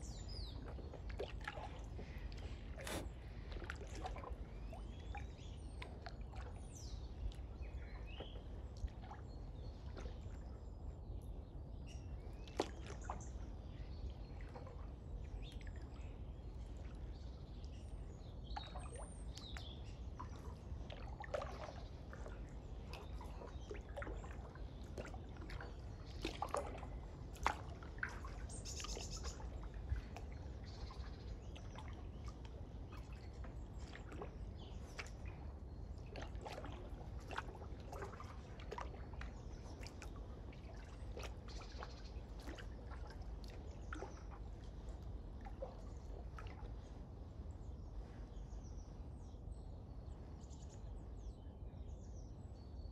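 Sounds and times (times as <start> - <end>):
small water splashes: 0.0 - 51.3
water dripping off paddle: 0.3 - 9.2, 18.6 - 46.9.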